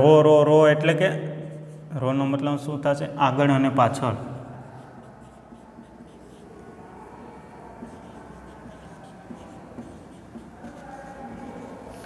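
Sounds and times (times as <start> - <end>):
marker pen scratching on whiteboard: 4.2 - 12.0.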